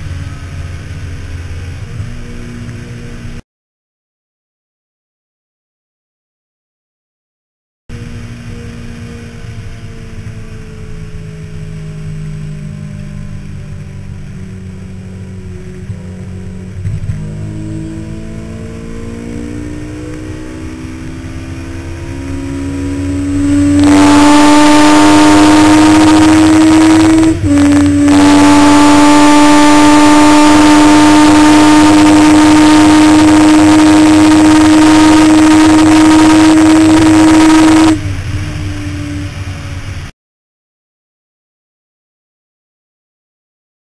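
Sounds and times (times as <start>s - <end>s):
motorcycle engine pulling hard: 12.6s - 40.0s.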